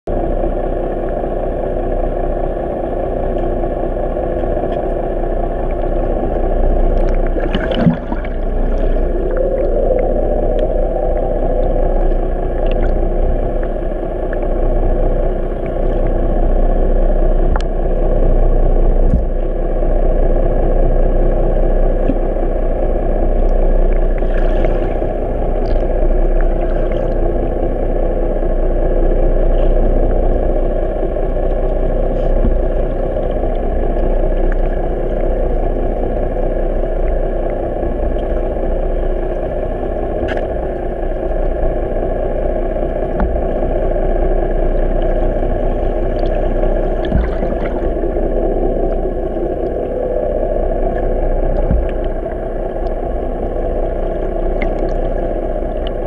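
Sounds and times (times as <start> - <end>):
muffled boat engine underwater: 0.1 - 56.0
clicks and splashes in water: 6.9 - 10.7, 46.0 - 48.1, 54.5 - 56.0.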